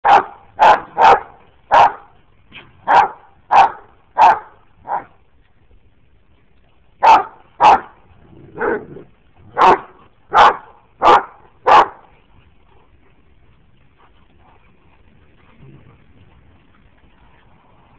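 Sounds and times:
large dog barking: 0.0 - 2.1, 2.8 - 5.1, 7.0 - 12.1.

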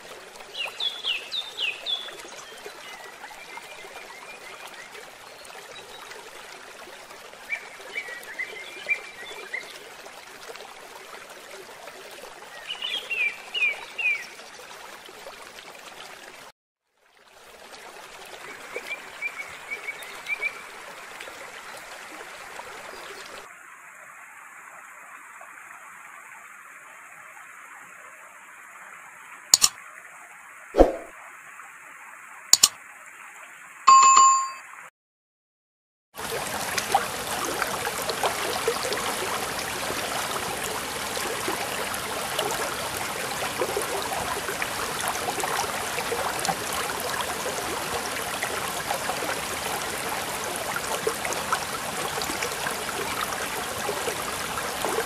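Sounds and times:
sharp clicks: 29.6 - 29.8, 32.6 - 32.8
bell-like ding: 33.9 - 34.7
stream rushing over rocks: 36.2 - 55.0.

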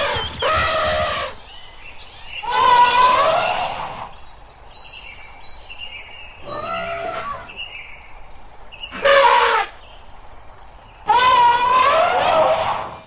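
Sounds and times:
elephant trumpeting: 0.0 - 1.4, 2.4 - 4.1, 6.4 - 7.6, 8.9 - 9.8, 11.1 - 13.0.

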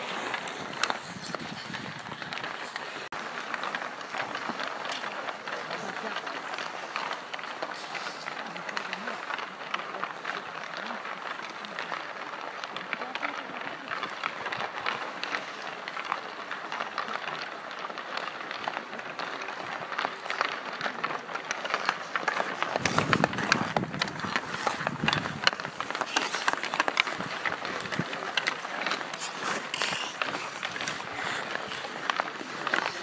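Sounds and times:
skate blades scraping ice: 0.0 - 33.0
sticks hitting pucks: 0.0 - 33.0.

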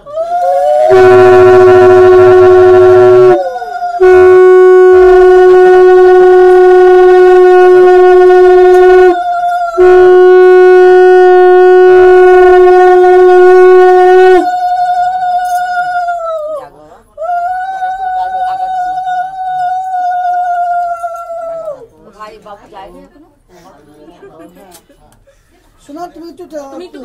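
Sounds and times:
higher conch shell note: 0.1 - 16.3
low conch shell blasts: 0.3 - 15.8.

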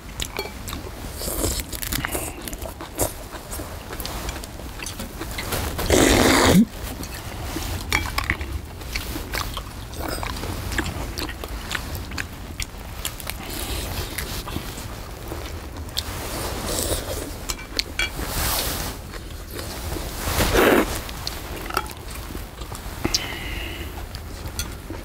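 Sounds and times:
chewing and smacking: 0.1 - 16.2.

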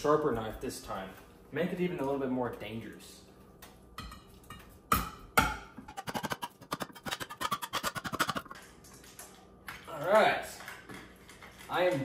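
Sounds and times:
short metallic knife strokes: 5.9 - 8.5.

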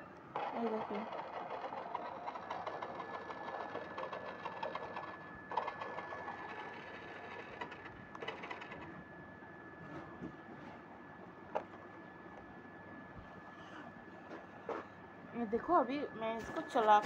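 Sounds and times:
toy car motor whirring: 0.4 - 8.9.

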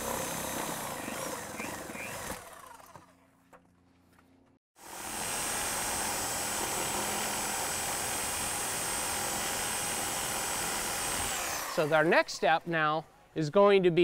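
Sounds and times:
reciprocating saw cutting wood: 0.0 - 3.2, 4.8 - 12.6.

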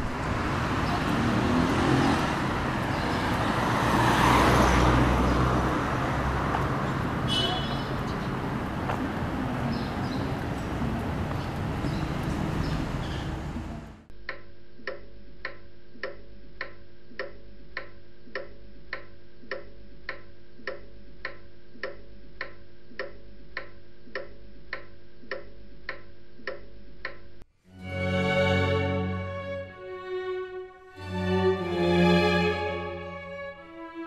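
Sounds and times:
outdoor street noise: 0.0 - 14.2, 27.4 - 34.0
clock ticking: 14.1 - 27.4.

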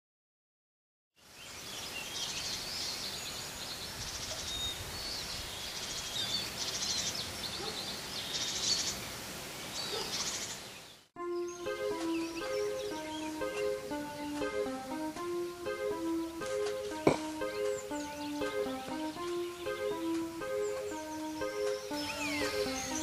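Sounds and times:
birds singing: 1.2 - 23.0
low background noise: 1.2 - 23.0
fast bird trills: 20.6 - 23.0.

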